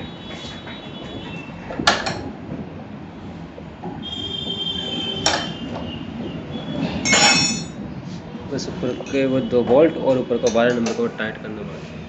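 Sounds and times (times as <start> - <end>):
high metallic ringing: 7.0 - 7.8, 8.9 - 9.6
metal tools clinking: 7.0 - 7.8.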